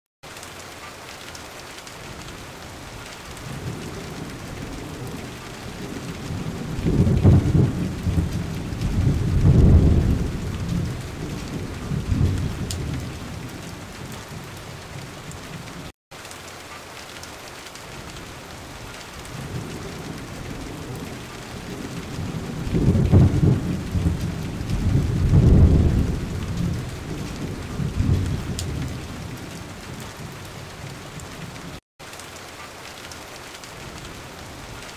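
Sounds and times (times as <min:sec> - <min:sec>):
steady rain: 0:00.2 - 0:34.9
rolling thunder: 0:02.9 - 0:15.9, 0:19.2 - 0:31.7.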